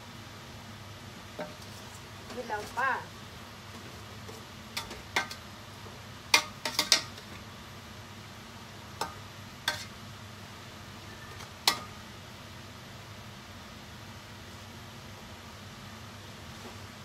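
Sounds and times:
metal spoon clinking against pot: 6.3s - 7.1s.

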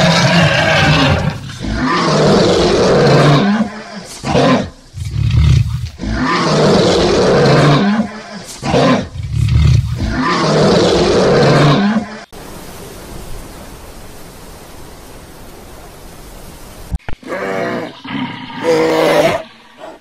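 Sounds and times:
lion roaring: 0.0s - 12.1s, 17.2s - 20.0s
animal call: 0.0s - 12.2s
steady hiss: 0.0s - 20.0s.

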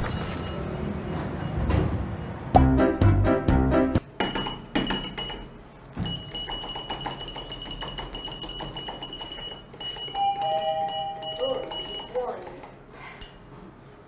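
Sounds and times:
steady high beep: 6.1s - 12.2s.

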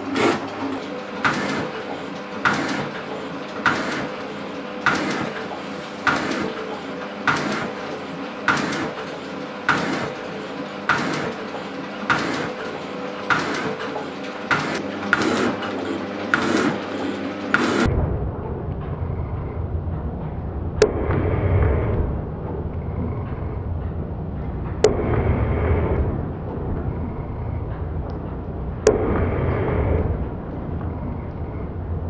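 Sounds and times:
shaping machine ram clacking: 0.0s - 17.9s
motor and gearing hum: 0.0s - 32.0s.

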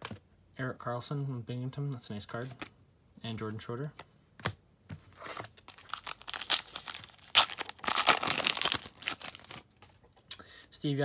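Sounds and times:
foil pack tearing and crinkling: 5.2s - 9.6s.

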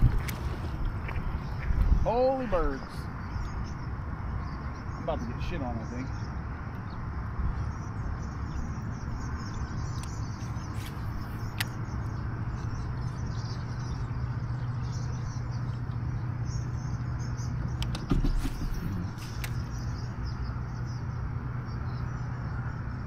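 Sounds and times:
wind and water rushing: 0.0s - 2.9s
sharp clicks: 17.7s - 19.7s.

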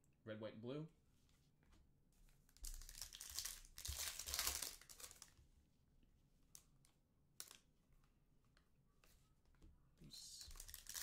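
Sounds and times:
wrapper tearing and crinkling: 2.6s - 5.3s, 10.5s - 11.0s.

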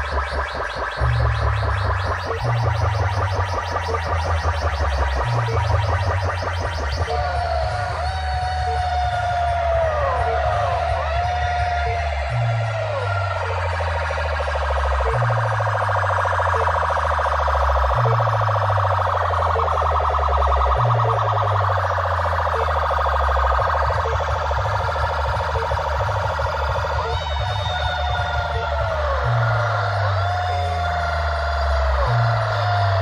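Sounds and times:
deep sliding bass line: 0.0s - 33.0s
loud dance music: 0.0s - 33.0s
warbling siren-like wail: 0.0s - 33.0s.

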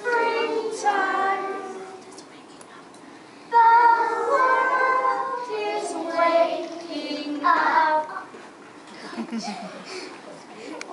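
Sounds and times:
children singing in unison: 0.0s - 2.0s, 3.5s - 8.3s.

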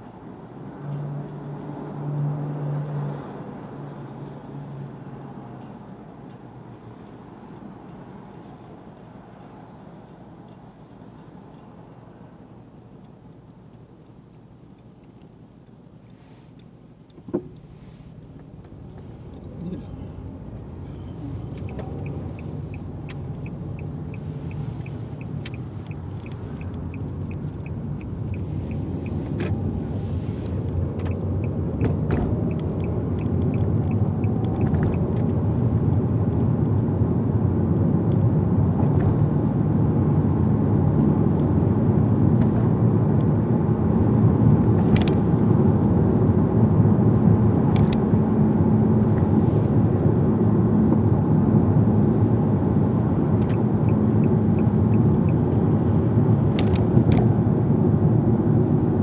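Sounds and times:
car road and engine noise: 0.0s - 59.0s
turn signal ticking: 18.3s - 38.1s, 52.4s - 57.4s.

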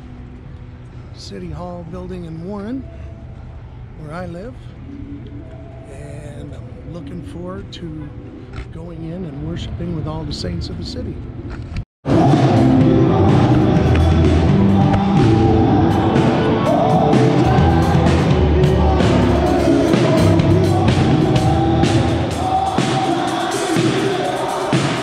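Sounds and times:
keyboard: 0.0s - 25.0s
drum kit beats: 12.0s - 25.0s
person singing: 12.1s - 25.0s.

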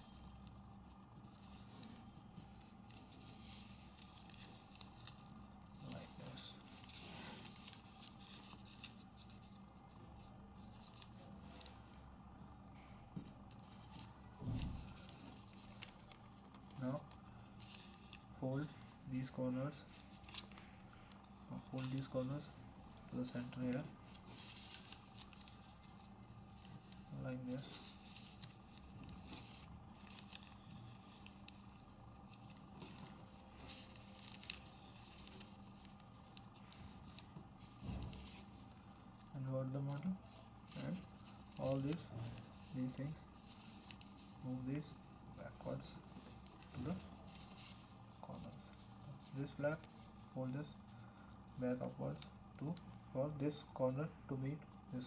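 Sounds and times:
paper crackles: 0.0s - 12.0s, 12.8s - 53.7s
paper rustling and crinkling: 0.0s - 12.0s, 12.8s - 53.7s.

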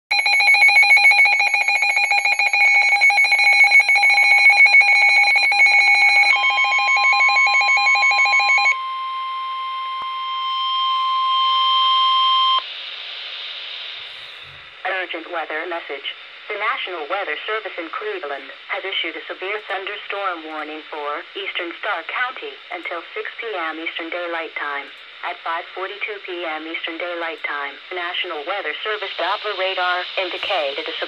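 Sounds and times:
fast warbling alarm beep: 0.1s - 12.6s
steady single-pitch alarm tone: 0.1s - 12.9s
static hiss: 12.6s - 31.0s.

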